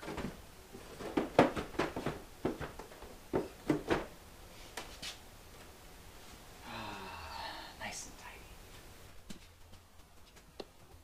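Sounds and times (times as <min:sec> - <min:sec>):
plastic drawers clicking and knocking: 0:00.0 - 0:04.1.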